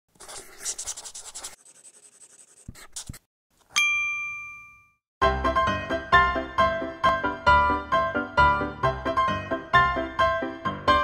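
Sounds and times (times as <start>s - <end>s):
pencil scratching on paper: 0.1s - 3.3s
bright ding: 3.7s - 5.0s
piano-like music: 5.2s - 11.0s.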